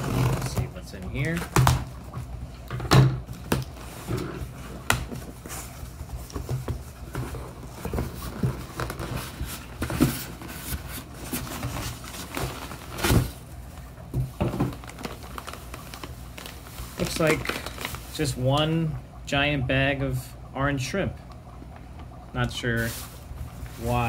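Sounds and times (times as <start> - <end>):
plastic liner rustling: 3.0 - 18.4, 22.7 - 24.0
cardboard flaps folding: 3.3 - 13.4.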